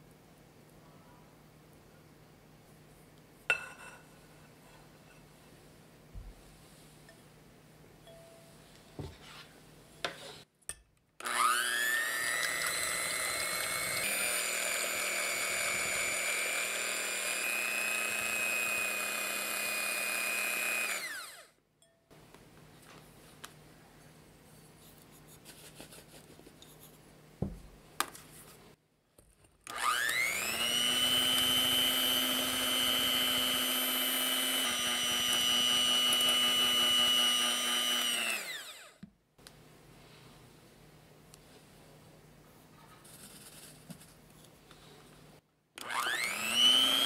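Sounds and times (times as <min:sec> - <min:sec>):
electric hand mixer whining: 0:11.2 - 0:21.5, 0:29.7 - 0:39.0, 0:45.8 - 0:47.0.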